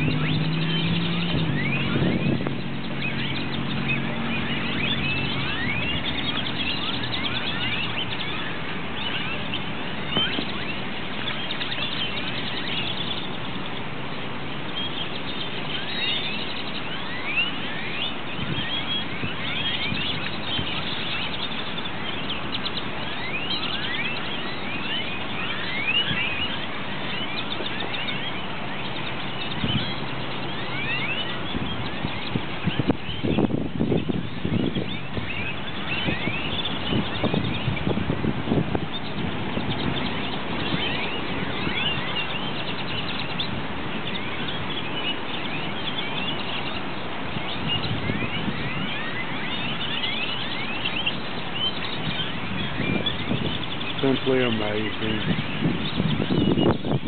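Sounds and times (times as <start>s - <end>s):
vehicle engine hum: 0.0s - 23.0s
flock of birds chattering: 0.0s - 57.0s
steady background noise: 0.0s - 57.0s.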